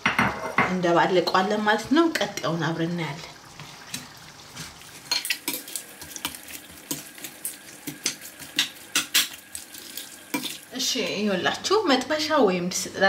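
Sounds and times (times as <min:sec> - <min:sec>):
rustle of food mixture: 0:03.5 - 0:10.8.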